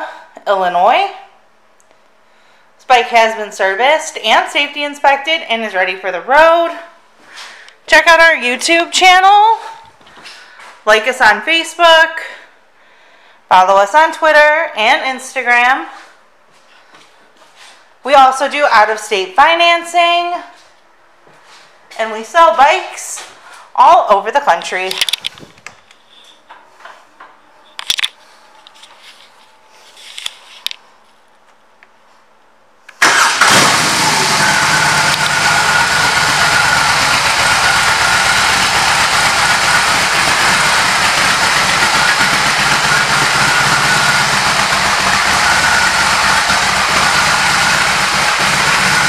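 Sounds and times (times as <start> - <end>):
motorcycle engine starting and idling: 32.9 - 49.0.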